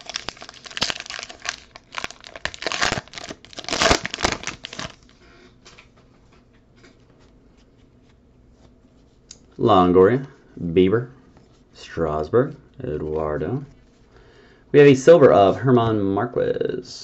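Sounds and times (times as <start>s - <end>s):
foil wrapper crinkling and tearing: 0.0s - 5.2s.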